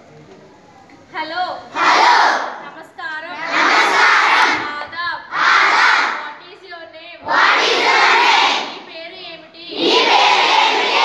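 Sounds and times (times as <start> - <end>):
children shouting in unison: 7.3 - 8.8, 9.7 - 11.0.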